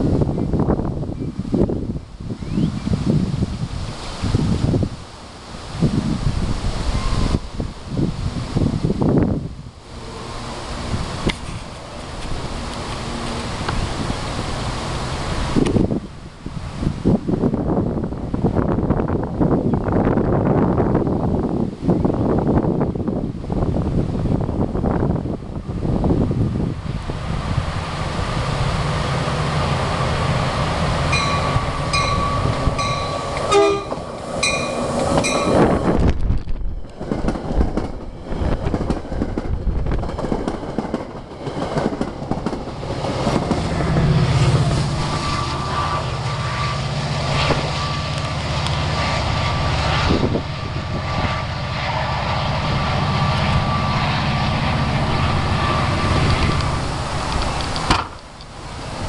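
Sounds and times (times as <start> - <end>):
locomotive diesel engine rumble: 24.2 - 59.0
train wheels clattering over rails: 31.1 - 45.0.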